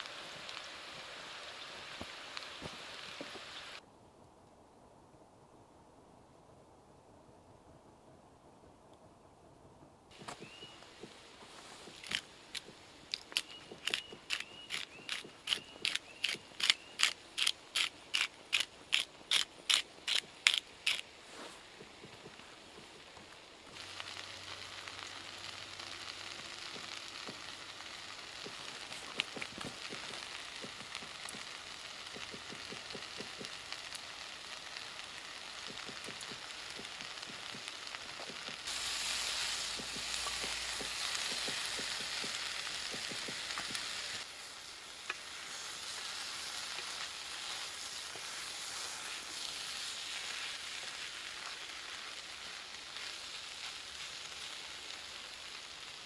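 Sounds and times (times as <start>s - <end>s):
food sizzling in a frying pan: 0.0s - 3.8s, 23.7s - 56.0s
wooden spatula turning food: 10.1s - 18.2s, 20.0s - 52.0s.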